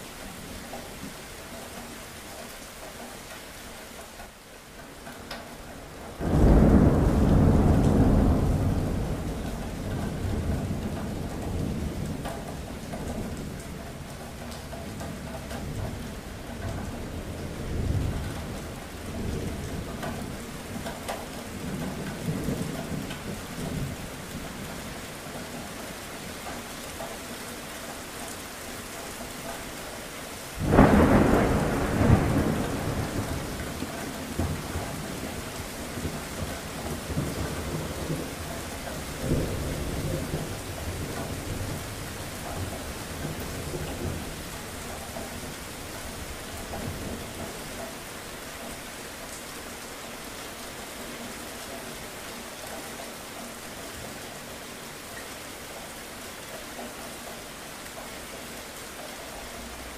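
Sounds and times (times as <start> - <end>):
steady rain: 0.0 - 59.9
thunder rumbling: 6.1 - 13.7, 30.6 - 47.7
loud thunderclap: 6.2 - 12.3, 30.6 - 38.3.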